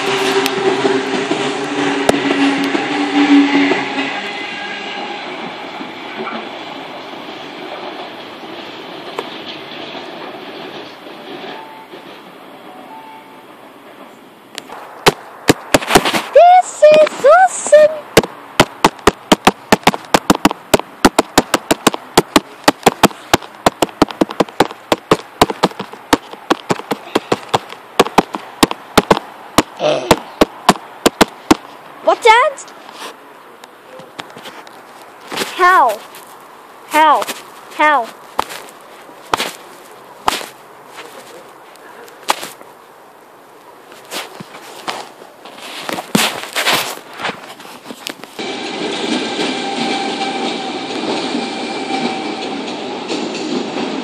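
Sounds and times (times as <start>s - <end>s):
train wheels rumbling on rails: 0.0s - 33.2s, 43.9s - 54.0s
electric train hum: 0.0s - 44.1s, 45.1s - 54.0s.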